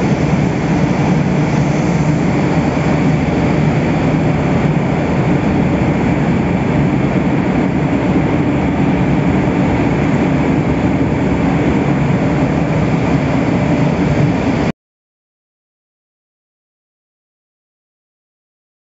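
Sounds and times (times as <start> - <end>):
machinery rumble and hum: 0.0 - 14.7.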